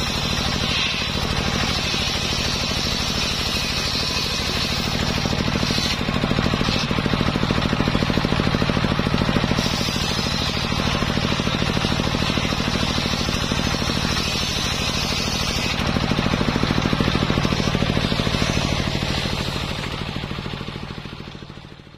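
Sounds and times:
saw blade cutting wood: 0.0 - 21.8
engine running: 0.0 - 21.9.

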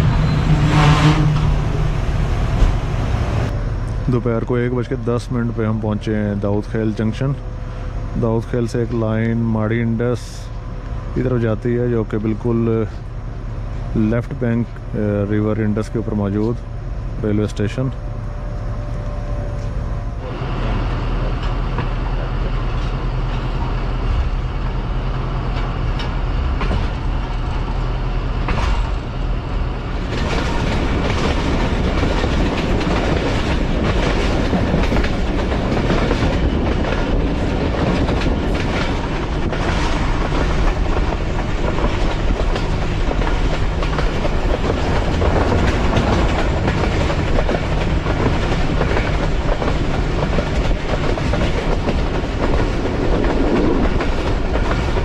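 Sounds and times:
train rumbling: 0.0 - 55.0
wheels clicking over rail joints: 30.0 - 55.0.

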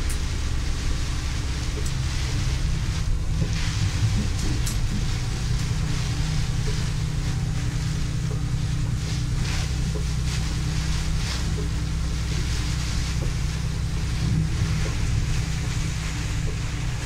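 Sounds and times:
heavy rain on vehicle: 0.0 - 17.0
low engine hum: 0.0 - 17.0.

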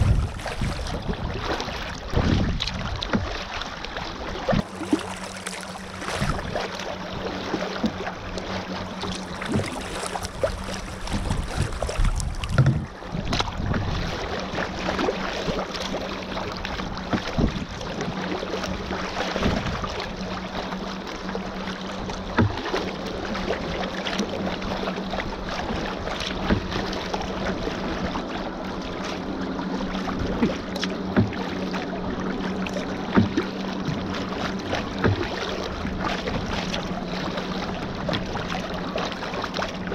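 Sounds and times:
kayak knocks: 0.0 - 1.0, 2.1 - 3.4, 4.5 - 6.8, 8.9 - 13.9, 22.3 - 22.7, 26.4 - 26.9, 30.2 - 31.6, 32.5 - 36.5
steady low hum: 0.0 - 3.0, 3.9 - 39.9
water splashing against kayak: 0.0 - 39.9.

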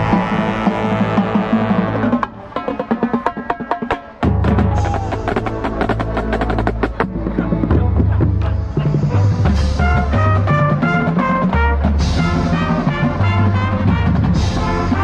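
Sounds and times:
brass playing a melody: 0.0 - 3.4, 5.2 - 15.0
drums: 0.0 - 15.0.

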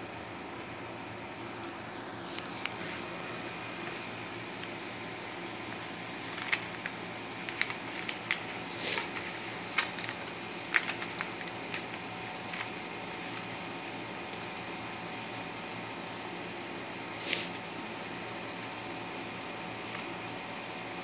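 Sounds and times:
steady background hiss: 0.0 - 21.0
paper banknotes rustling: 1.6 - 15.4.

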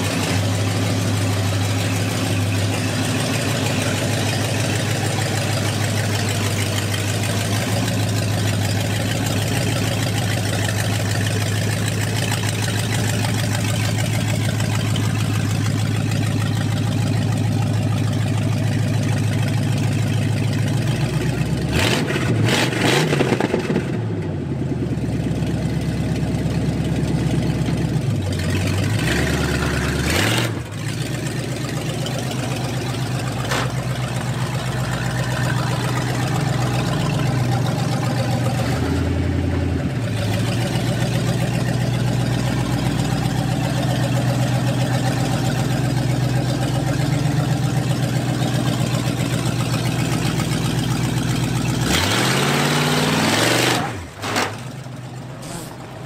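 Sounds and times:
car engine revving: 0.0 - 11.1, 21.6 - 24.0, 28.3 - 46.3, 50.1 - 56.0.

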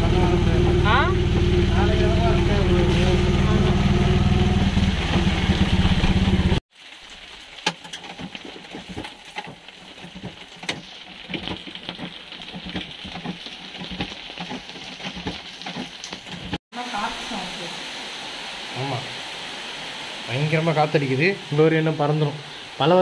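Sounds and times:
auto-rickshaw engine running: 0.0 - 6.6
heavy rain pattering: 0.0 - 23.0.

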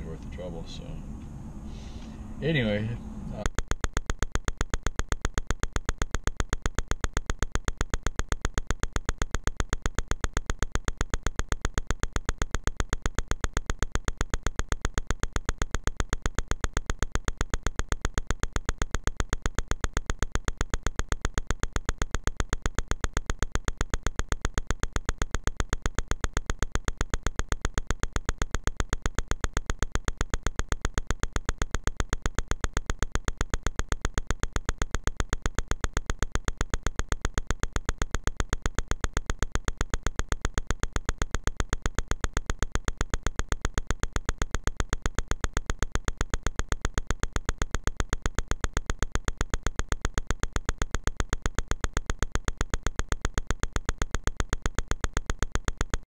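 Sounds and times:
rapid even clicking: 3.4 - 56.0.

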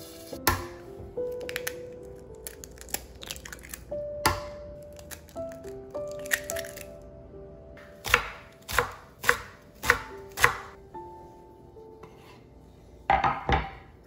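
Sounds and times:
soft background music: 0.0 - 14.0
knife chopping on wooden board: 8.0 - 10.7.

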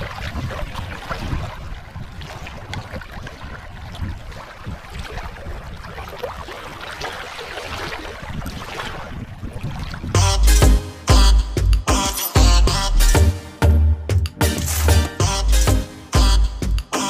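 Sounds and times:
waves lapping on stony shore: 0.0 - 10.2
wind rumbling on microphone: 0.0 - 10.2.

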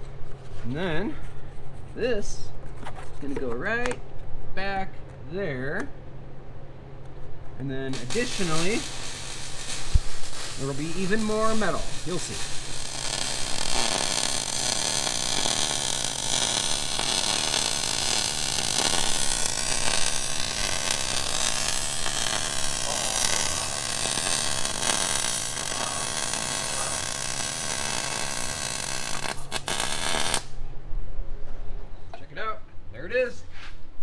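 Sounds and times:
low electrical hum: 0.0 - 34.0
welder arc buzzing: 7.8 - 30.6.

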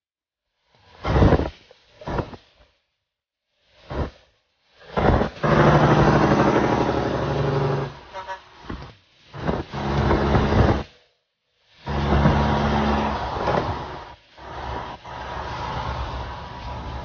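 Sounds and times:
road and wind noise: 4.9 - 11.0, 11.7 - 17.0
diesel truck engine droning: 11.9 - 17.0.

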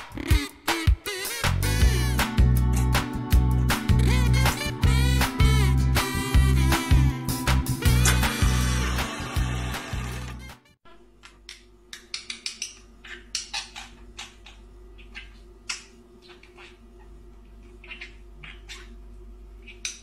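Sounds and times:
budgerigar chirps and clicks: 11.2 - 19.0, 19.6 - 20.0.

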